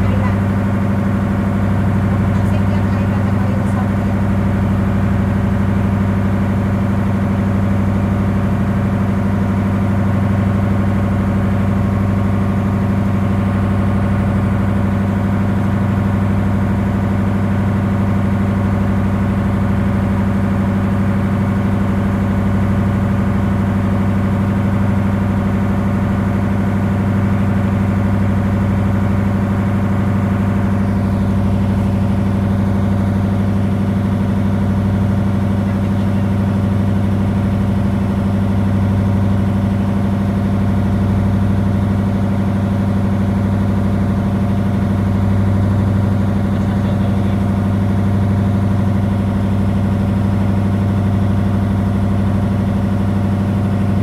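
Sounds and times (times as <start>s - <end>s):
boat engine droning: 0.0s - 54.0s
rush of boat wake: 0.0s - 54.0s.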